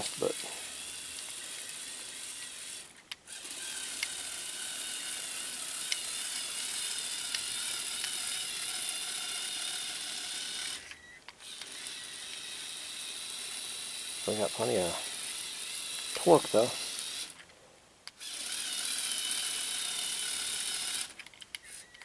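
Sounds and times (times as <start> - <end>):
electric motor and plastic gears whirring: 0.0 - 22.0
small clicks: 21.0 - 22.0.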